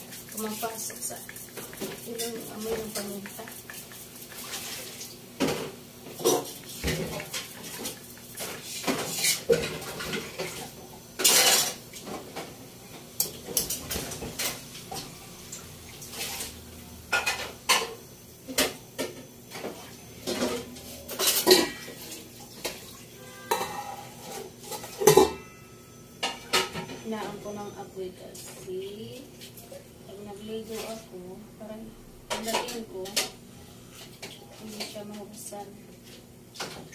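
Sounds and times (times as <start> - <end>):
utensil scraping in frying pan: 0.0 - 11.9.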